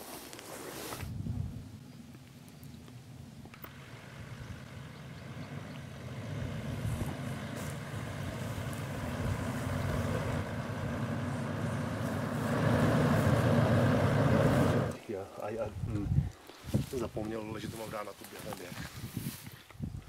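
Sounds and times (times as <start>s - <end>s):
pickup engine driving: 2.0s - 15.0s.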